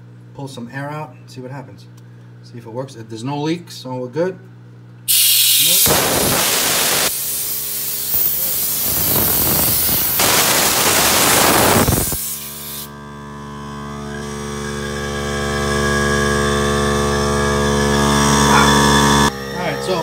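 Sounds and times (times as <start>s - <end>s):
compressed air hissing from hose: 5.1s - 12.9s
air compressor motor humming: 5.1s - 19.8s.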